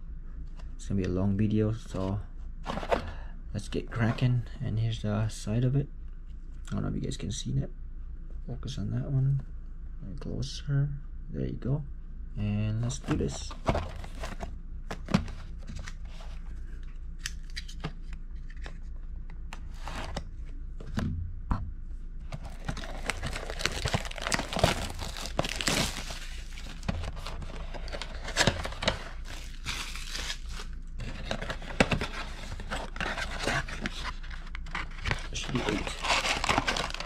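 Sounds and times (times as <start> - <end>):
cardboard box tearing and crinkling: 22.5 - 37.0.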